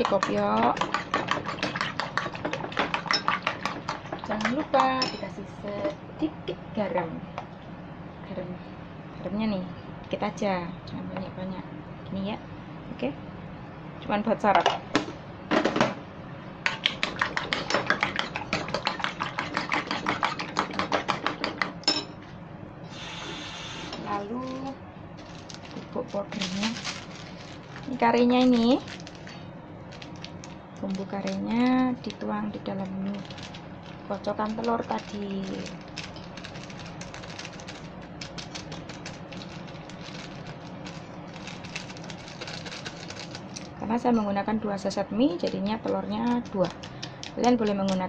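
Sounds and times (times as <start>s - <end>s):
spoon beating eggs in bowl: 0.0s - 5.2s, 16.7s - 21.8s.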